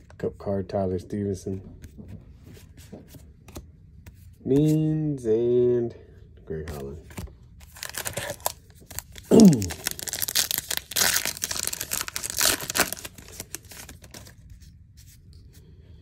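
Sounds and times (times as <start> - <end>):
foil wrapper tearing and crinkling: 7.6 - 14.3.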